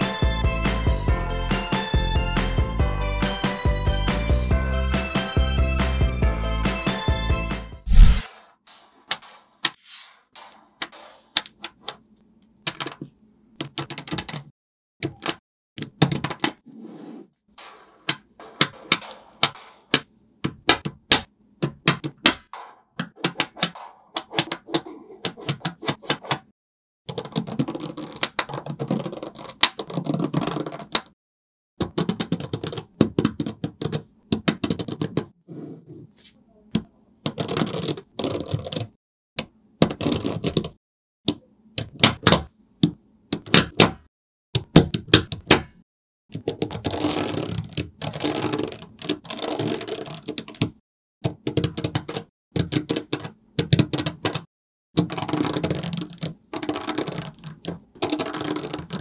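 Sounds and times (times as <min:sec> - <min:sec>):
magnetic balls clicking together: 0:55.0 - 0:59.0.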